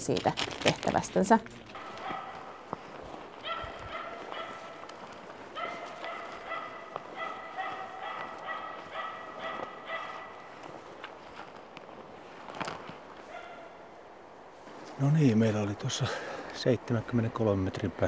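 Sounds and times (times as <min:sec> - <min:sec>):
distant dog barking: 0:01.7 - 0:02.7, 0:03.4 - 0:10.8, 0:13.2 - 0:14.0.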